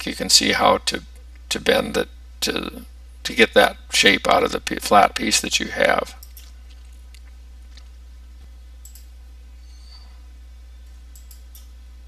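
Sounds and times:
low electrical hum: 0.0 - 12.0
computer mouse clicks: 8.8 - 9.1, 11.1 - 11.7.

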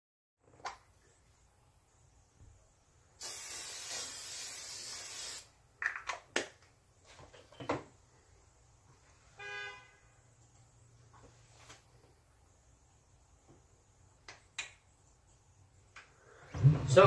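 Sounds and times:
spray bottle hiss: 3.2 - 5.5.

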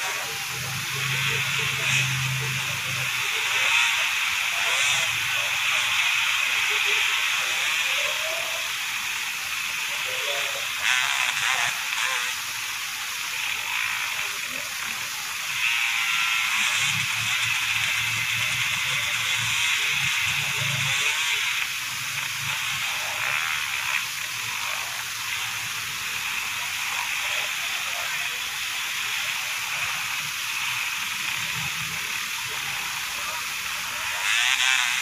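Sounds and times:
people's voices: 0.0 - 8.7
dirt bike engines revving: 0.0 - 12.5.

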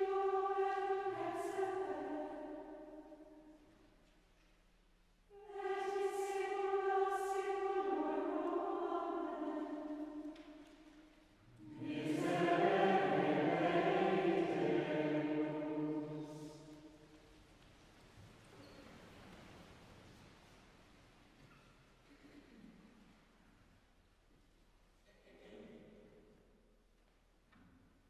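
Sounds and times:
choir chanting in unison: 0.0 - 3.5, 5.3 - 10.4, 11.6 - 17.0.

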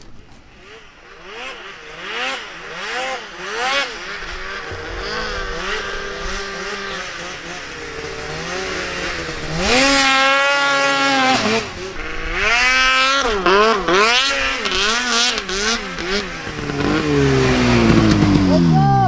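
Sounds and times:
snowmobile engines revving: 0.3 - 19.0.

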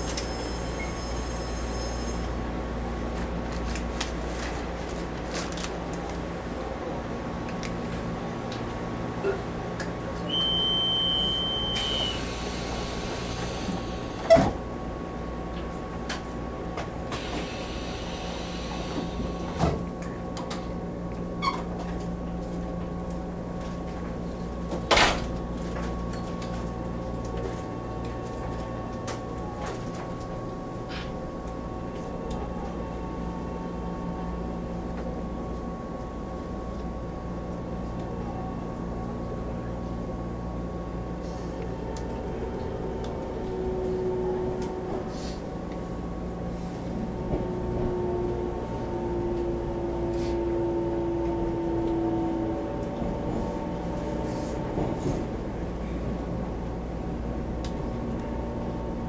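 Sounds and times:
train electrical hum: 0.0 - 59.0
high beep: 10.3 - 12.2.

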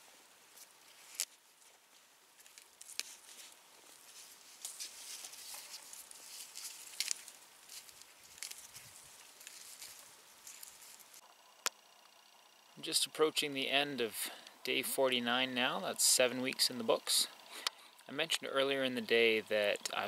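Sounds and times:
dry material rustling: 0.6 - 11.2.

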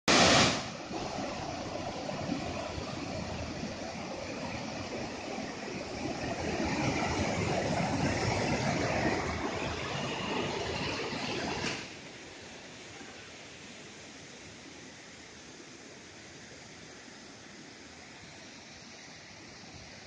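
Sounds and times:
loud burst of noise: 0.0 - 3.2
waterfall and rapids rushing: 0.0 - 20.0.

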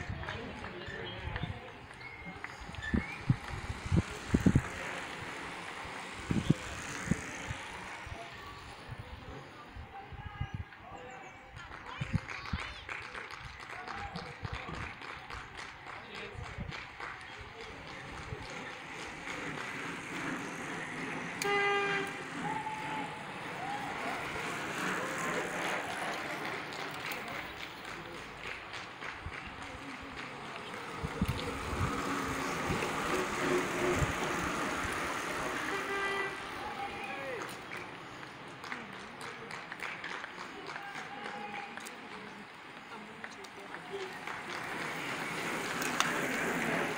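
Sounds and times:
street background noise: 0.0 - 46.9
bicycle tyres hissing on tarmac: 2.6 - 9.6, 18.5 - 27.9, 30.4 - 38.5, 44.4 - 46.9
horn steady bright tone: 20.9 - 23.2, 33.1 - 37.0
short higher horn tones: 21.0 - 23.3, 35.4 - 37.0.

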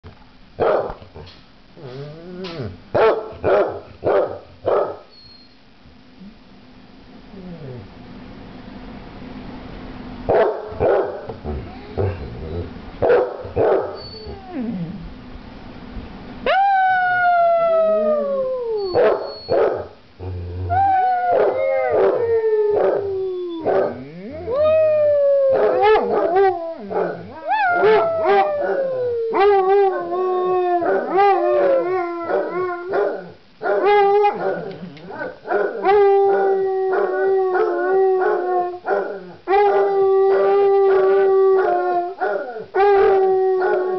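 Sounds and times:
dogs barking: 0.6 - 1.0, 3.0 - 5.1, 10.3 - 11.4, 13.0 - 14.0, 19.0 - 20.0, 23.6 - 24.0, 32.3 - 40.5, 42.2 - 43.8
dogs howling: 16.5 - 43.9.

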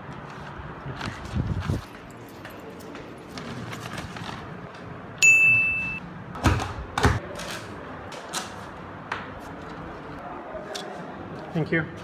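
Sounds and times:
paper and desk clatter: 0.0 - 4.9, 7.1 - 12.0
bright ding: 5.2 - 6.0.

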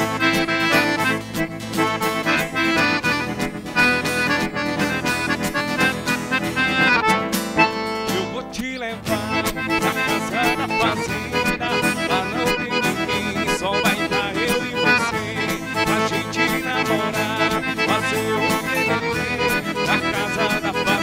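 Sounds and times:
accordions playing: 0.0 - 21.0
acoustic guitar: 0.0 - 21.0
man singing: 8.0 - 21.0.

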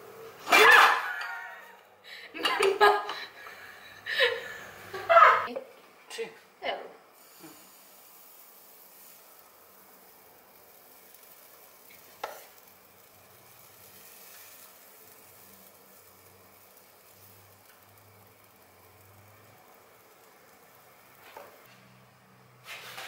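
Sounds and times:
batter sizzling in frying pan: 7.1 - 23.0.

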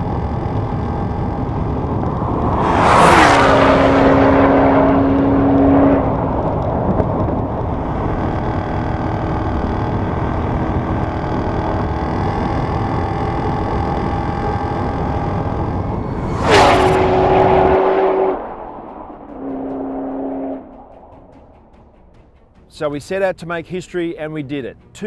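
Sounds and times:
car engine at full throttle: 0.0 - 22.5
wind and road roar: 0.0 - 22.7
whoosh sweeping down in pitch: 1.5 - 8.1, 15.8 - 21.6.

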